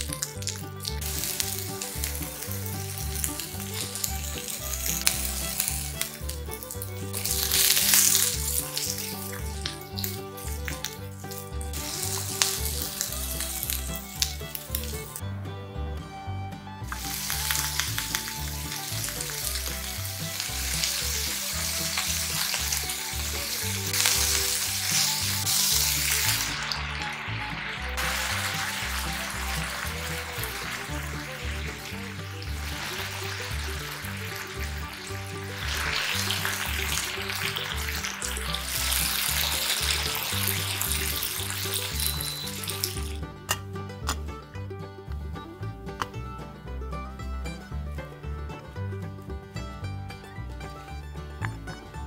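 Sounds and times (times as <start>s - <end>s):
food sizzling in oil: 0.0s - 15.2s, 16.9s - 43.2s
sauce bubbling: 0.0s - 15.7s, 16.9s - 44.4s
background music with bass line: 0.0s - 52.0s.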